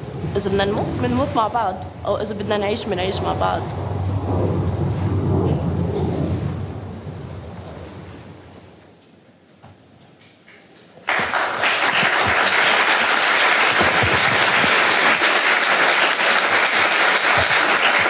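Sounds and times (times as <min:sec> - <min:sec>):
audience applauding: 0:11.0 - 0:18.0.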